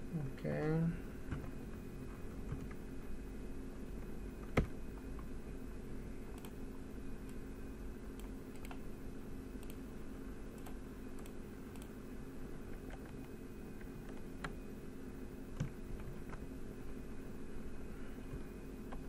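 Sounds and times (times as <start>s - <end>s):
steady low hum: 0.0s - 19.0s
mouse and keyboard clicks: 8.2s - 8.8s.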